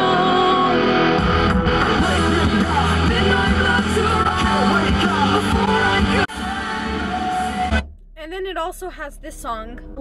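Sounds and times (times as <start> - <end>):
heavy rock song: 0.0 - 7.9.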